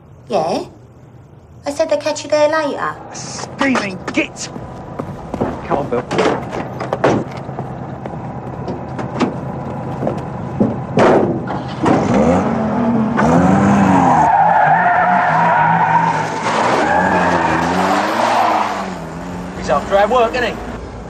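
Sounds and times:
van engine revving: 0:02.9 - 0:21.0
tyres squealing: 0:14.0 - 0:19.0.

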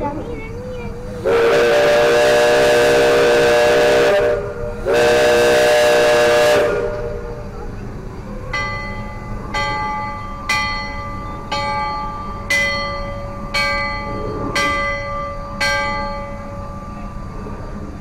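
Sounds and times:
large bell ringing: 0:08.5 - 0:17.3.

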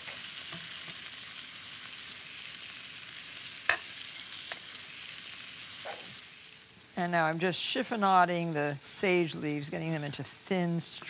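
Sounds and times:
liver sizzling in oil: 0:00.0 - 0:07.0.

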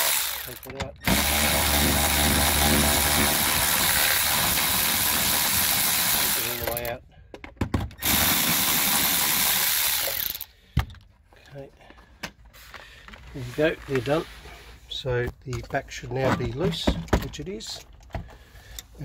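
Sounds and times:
power tool spinning bolts: 0:00.0 - 0:07.0, 0:08.0 - 0:10.5.

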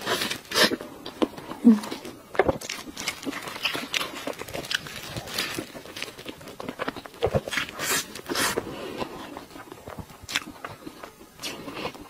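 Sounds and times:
wet chewing and lip-smacking: 0:00.0 - 0:12.0.

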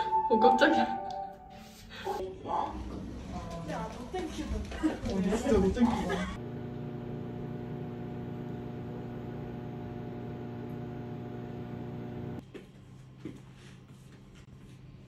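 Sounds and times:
appliance electrical hum: 0:03.0 - 0:15.0.

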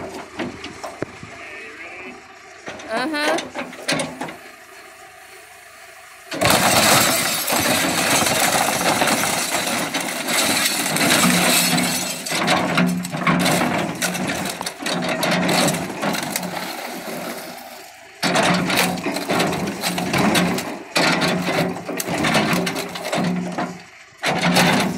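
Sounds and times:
crunching and cracking wreckage: 0:00.0 - 0:01.3, 0:06.3 - 0:24.9
backhoe humming: 0:00.0 - 0:24.9
bucket crashing on television: 0:06.4 - 0:17.6, 0:18.2 - 0:24.9.

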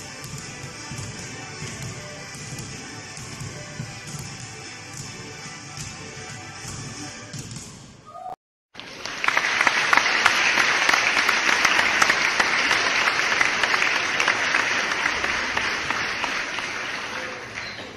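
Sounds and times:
crowd applauding: 0:08.8 - 0:17.9.

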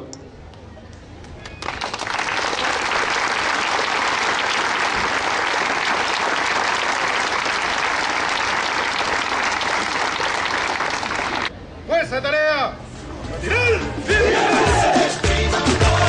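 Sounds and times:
crowd clapping: 0:01.2 - 0:11.5, 0:15.1 - 0:16.0.

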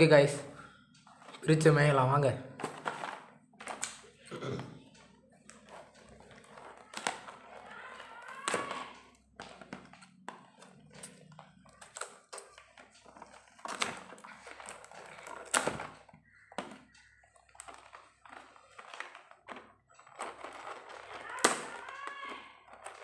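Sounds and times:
plastic crinkling: 0:01.1 - 0:04.3, 0:05.4 - 0:23.0
sharp plastic snaps: 0:02.5 - 0:04.1, 0:05.4 - 0:23.0
scissors snipping plastic: 0:05.4 - 0:23.0.

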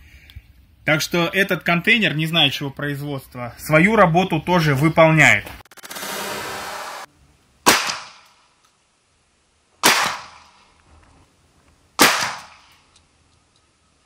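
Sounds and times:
shotgun blasts with echo: 0:07.6 - 0:08.3, 0:09.8 - 0:10.6, 0:12.0 - 0:12.7.

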